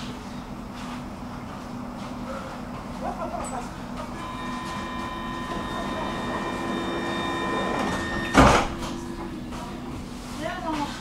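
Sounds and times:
door-closing warning tone: 4.2 - 10.0
sliding doors shutting with thud: 4.2 - 10.2.

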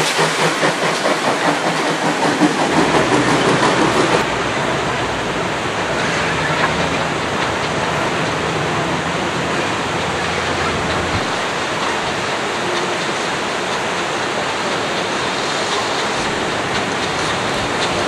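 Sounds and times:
river water rushing: 0.9 - 18.0.

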